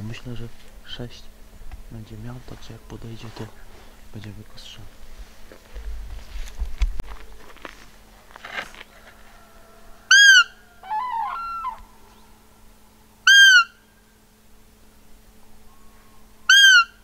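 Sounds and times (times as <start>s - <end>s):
quieter wavering call: 9.3s - 17.0s
deer call squeaks: 10.1s - 11.8s, 13.2s - 13.9s, 16.5s - 17.0s.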